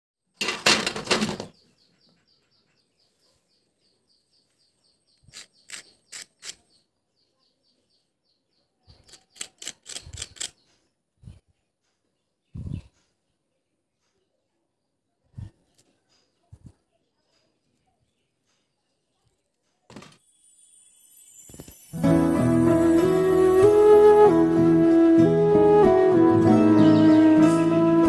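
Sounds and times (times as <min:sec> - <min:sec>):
sharp clinks: 0:20.2 - 0:22.1.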